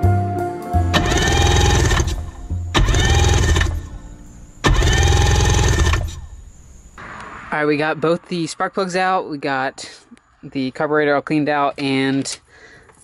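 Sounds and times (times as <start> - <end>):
electric starter cranking engine: 0.9 - 6.5.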